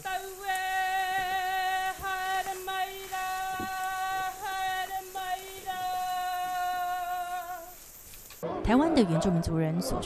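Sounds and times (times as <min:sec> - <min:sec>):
person singing sustained note: 0:00.0 - 0:07.8.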